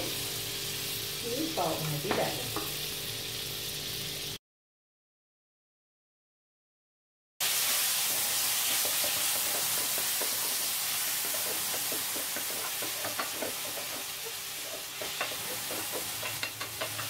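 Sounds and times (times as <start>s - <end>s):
food sizzling on a griddle: 0.0s - 4.4s, 7.4s - 17.0s
spatula scraping and tapping pan: 2.1s - 2.8s, 8.1s - 17.0s.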